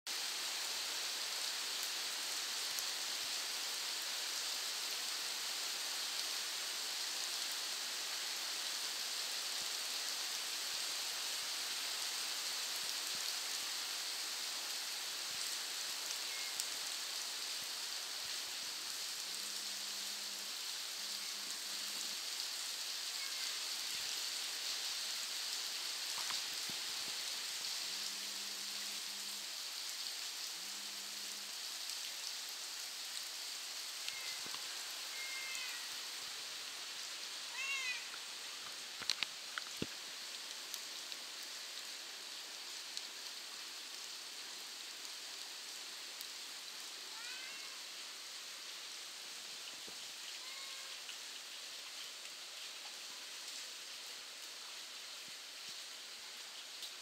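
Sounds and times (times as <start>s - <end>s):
steady rain hiss: 0.1s - 57.0s
raindrops ticking: 38.0s - 41.2s.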